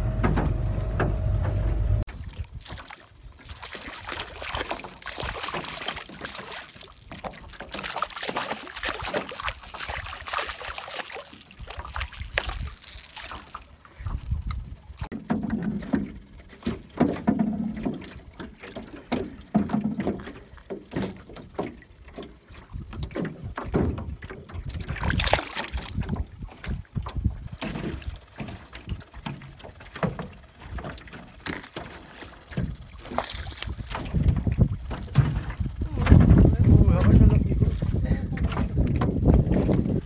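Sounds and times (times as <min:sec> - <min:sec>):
water lapping against boat: 0:01.4 - 0:40.0
fish splashing at surface: 0:02.1 - 0:15.2, 0:24.8 - 0:26.9, 0:30.0 - 0:38.1
wind buffeting microphone: 0:13.9 - 0:15.1, 0:22.8 - 0:28.2, 0:32.6 - 0:40.0.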